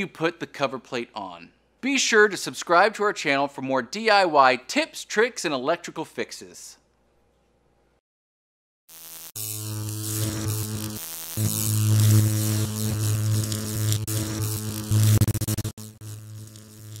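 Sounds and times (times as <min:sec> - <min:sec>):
electrical buzz with crackling static: 0:08.9 - 0:17.0
sharp electrical clicks: 0:08.9 - 0:17.0.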